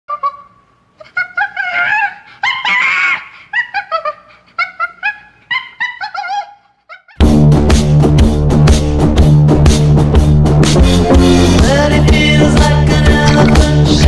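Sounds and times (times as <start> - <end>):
chimpanzee hoots and cries: 0.1 - 7.2
chimpanzee scream: 0.1 - 7.2.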